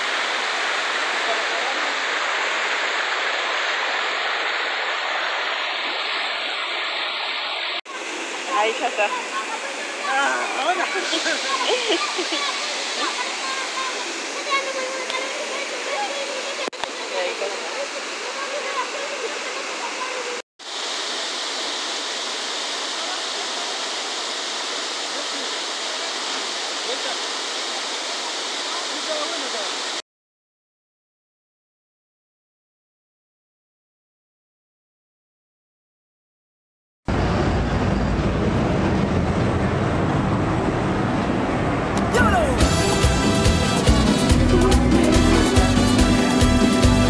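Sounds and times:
river water rushing over rocks: 0.0 - 30.0.

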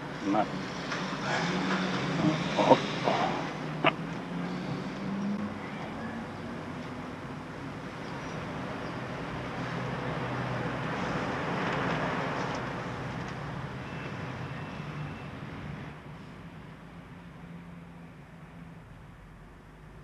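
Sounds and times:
hum of traffic engines: 0.0 - 20.0
vehicle passing: 0.3 - 6.8.

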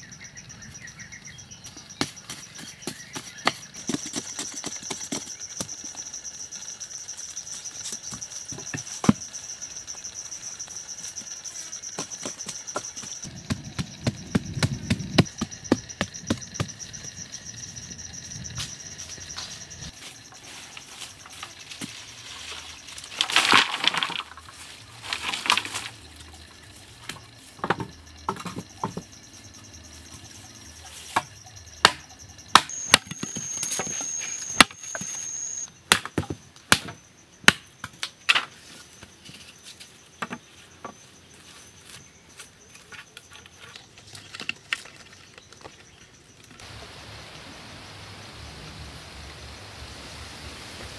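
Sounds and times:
high insect buzz: 0.0 - 35.7.

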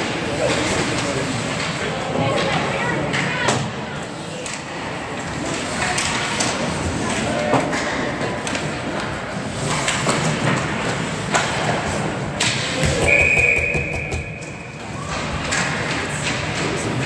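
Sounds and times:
hockey sticks and skates on ice: 0.0 - 17.0
shrill whistle blast: 13.0 - 14.6.

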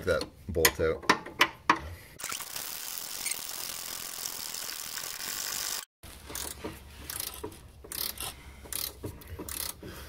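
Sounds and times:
ratcheting wrench clicking: 5.6 - 9.9.

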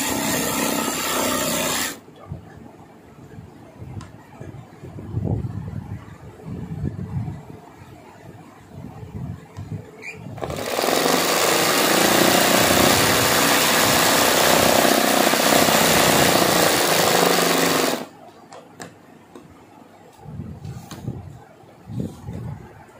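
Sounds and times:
sewing machine running fast: 0.0 - 2.0, 10.4 - 18.1.

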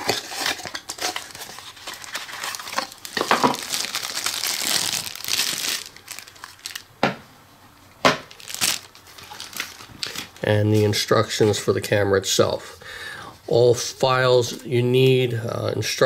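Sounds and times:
plastic bag crinkling: 0.0 - 6.9, 8.3 - 10.5.

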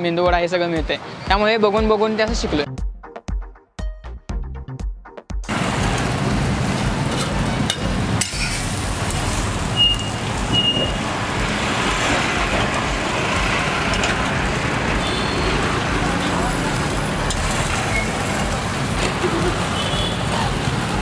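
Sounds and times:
passing traffic: 0.0 - 2.7, 5.4 - 21.0
hot griddle noise: 5.5 - 21.0.

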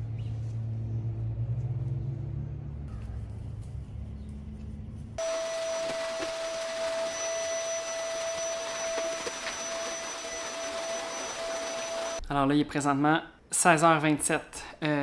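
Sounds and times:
vacuum cleaner running: 5.2 - 12.2.

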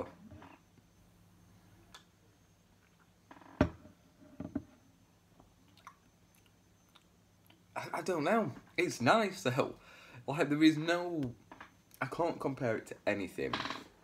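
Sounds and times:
mouth clicks and smacks: 5.6 - 7.7.

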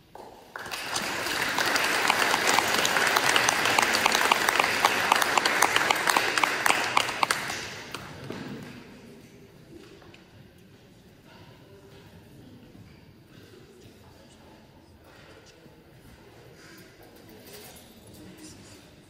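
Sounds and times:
audience applauding: 0.5 - 8.3.

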